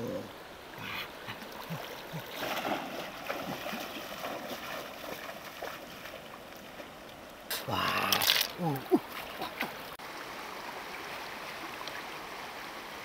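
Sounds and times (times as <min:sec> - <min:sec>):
stream water rushing: 0:00.0 - 0:13.0
water splashing from wading: 0:00.6 - 0:10.0.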